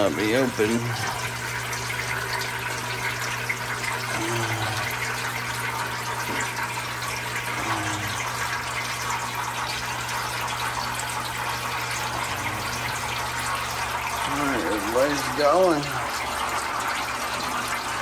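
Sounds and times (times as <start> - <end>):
steady low hum: 3.8 - 16.5.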